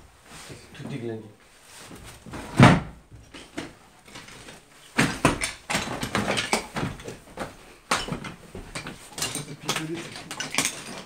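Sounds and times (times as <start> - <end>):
footsteps crunching over rubble: 3.1 - 11.0.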